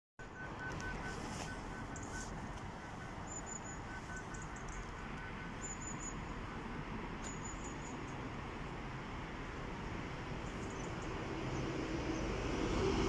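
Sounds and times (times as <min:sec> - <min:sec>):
faint high beep: 0:00.2 - 0:08.0.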